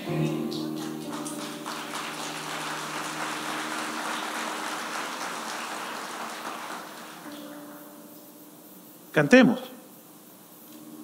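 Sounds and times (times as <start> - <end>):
soft background music chord: 0.0 - 5.2, 7.3 - 9.8, 10.6 - 11.0
crowd applauding: 0.0 - 7.8.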